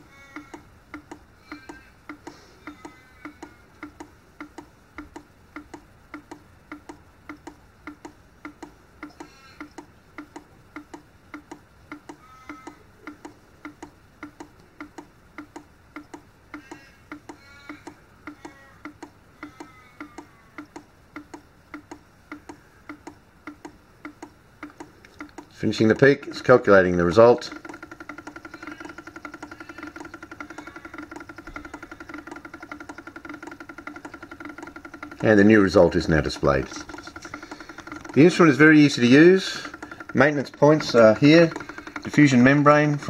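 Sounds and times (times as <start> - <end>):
analyser ticking: 0.0 - 43.0.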